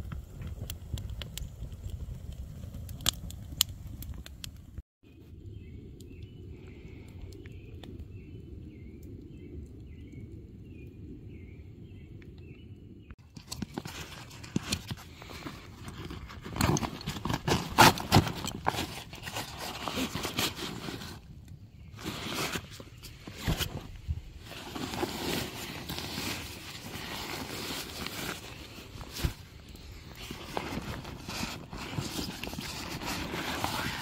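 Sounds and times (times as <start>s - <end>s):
rummaging in nylon backpack: 13.2s - 21.2s, 21.9s - 34.0s.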